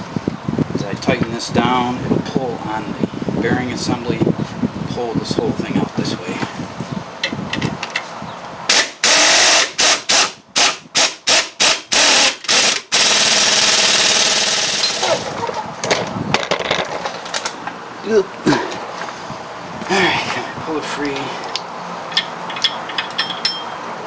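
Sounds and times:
air ratchet whirring: 8.7 - 15.2.

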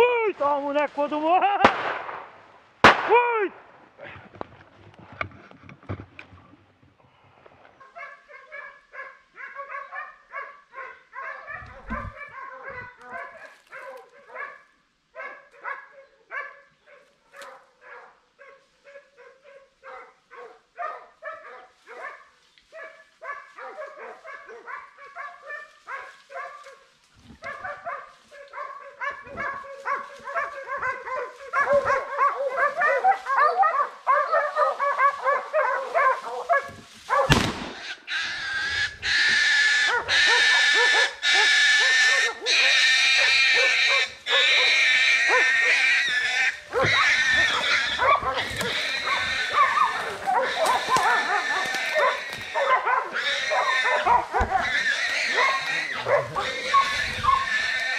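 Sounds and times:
sharp bang: 1.6 - 3.3, 37.3 - 37.9
dogs barking: 7.8 - 57.9.

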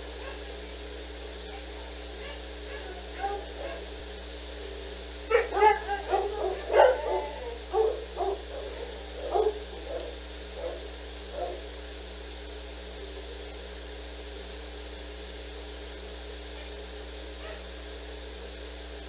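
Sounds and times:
dog barking: 0.2 - 0.5, 1.5 - 3.9, 5.3 - 11.7, 17.4 - 17.7.

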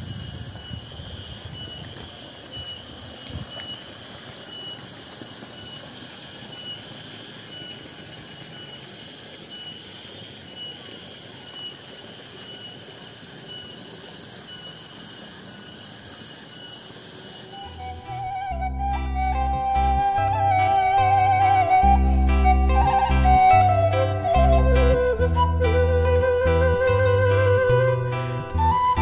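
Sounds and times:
cicadas buzzing: 0.0 - 29.0.

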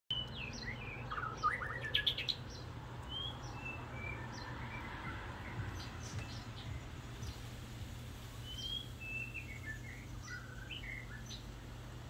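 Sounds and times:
songbirds singing: 0.1 - 12.0
steady low hum: 2.4 - 12.0.

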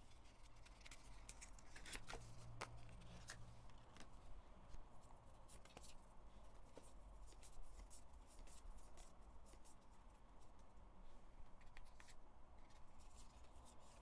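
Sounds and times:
photocards flipped by hand: 0.4 - 4.1.

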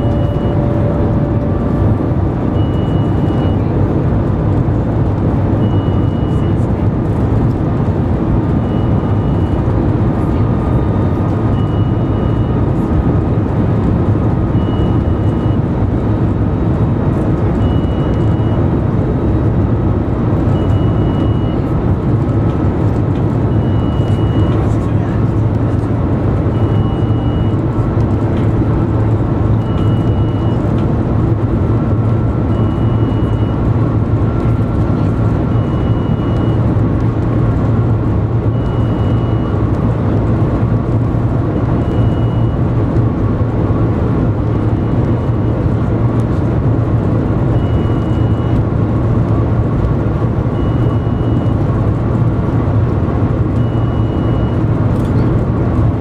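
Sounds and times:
faint high beep: 0.0 - 1.8, 2.5 - 3.7, 5.6 - 6.7, 8.6 - 9.7, 11.5 - 12.6, 14.6 - 15.6, 17.6 - 18.6, 20.5 - 21.7, 23.5 - 25.2, 26.5 - 27.7, 29.6 - 30.8, 32.5 - 33.7, 34.4 - 36.6, 38.5 - 39.6, 41.8 - 42.6, 47.5 - 48.6, 50.5 - 51.6, 53.6 - 55.1
train cabin low rumble: 0.0 - 56.0.

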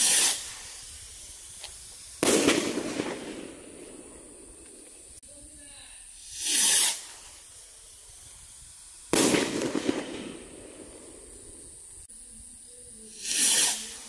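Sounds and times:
firework bang: 0.0 - 5.2, 9.1 - 11.8
firework launch whoosh: 0.0 - 5.2, 6.1 - 12.1, 13.1 - 14.0
firework crackling: 0.0 - 14.0.

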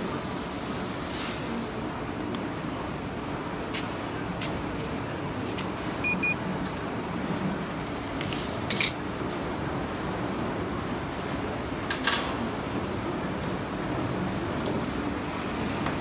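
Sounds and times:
steady background noise: 0.0 - 16.0
short electronic beeps: 6.0 - 6.4.

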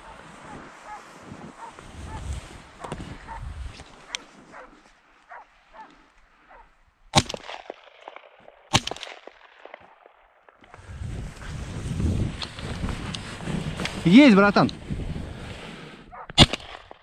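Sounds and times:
faint baying of hound: 0.0 - 3.5, 4.1 - 6.8, 16.1 - 16.4
shotgun shots: 7.1 - 9.8, 16.4 - 17.0.

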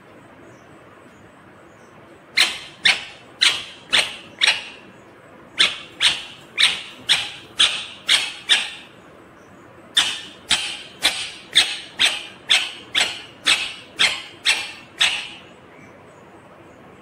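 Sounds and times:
parakeet screeching calls: 2.4 - 4.9, 5.6 - 9.0, 9.9 - 15.5.

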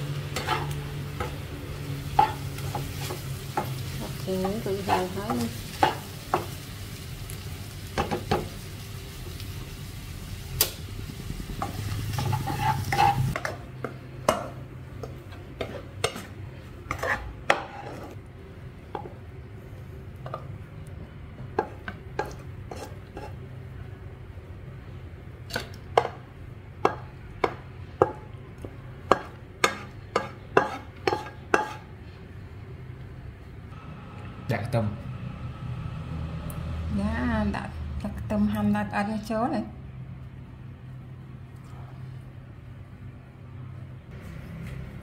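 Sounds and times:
squid sizzling in a wok: 0.0 - 18.2.

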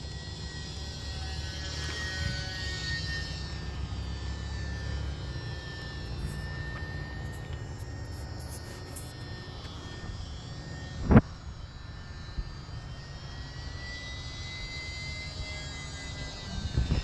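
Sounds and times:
model plane electric motor whine: 0.0 - 17.0
wind rumble on microphone: 9.9 - 12.6, 15.4 - 17.0.

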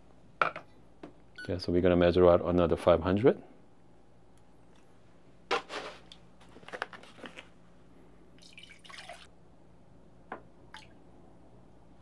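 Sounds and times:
water pouring into a pitcher: 8.4 - 9.3.

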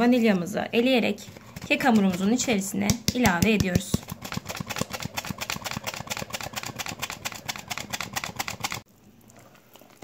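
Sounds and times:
flour sifter ticking: 1.5 - 8.9.

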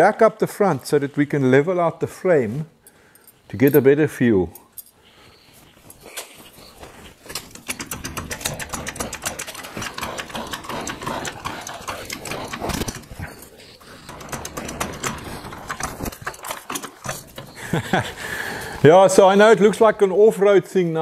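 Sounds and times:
floor jack handle clicking and knocking: 7.3 - 13.3, 13.9 - 17.6.

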